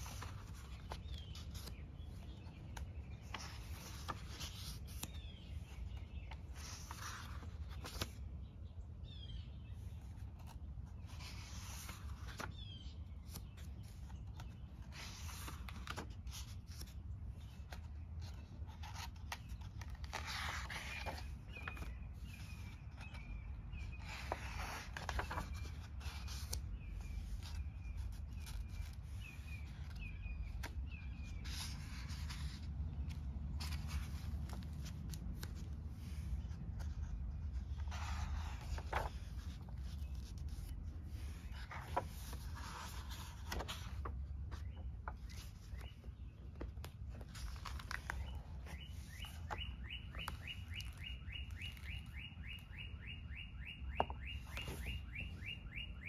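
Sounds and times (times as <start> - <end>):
notebook pages turning: 0.0 - 8.9, 9.7 - 53.0, 53.8 - 55.9
bird chirping: 8.4 - 15.6, 44.4 - 56.0.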